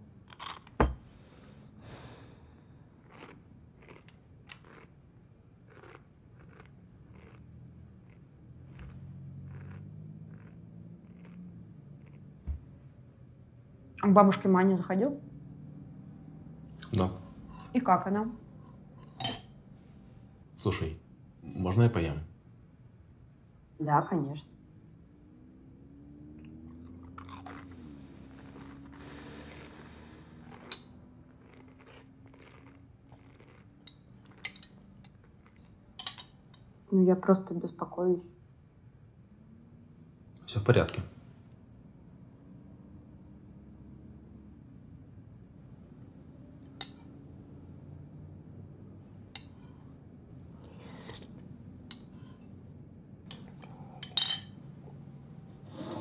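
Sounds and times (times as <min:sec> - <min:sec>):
faint low hum: 0:00.0 - 0:56.0
cutlery scraping a plate: 0:17.3 - 0:17.8, 0:18.6 - 0:19.6, 0:33.8 - 0:36.7, 0:49.4 - 0:49.9, 0:51.9 - 0:52.5, 0:53.3 - 0:54.6
fork clinking on a plate: 0:18.6 - 0:19.6, 0:33.5 - 0:36.7, 0:53.3 - 0:54.6.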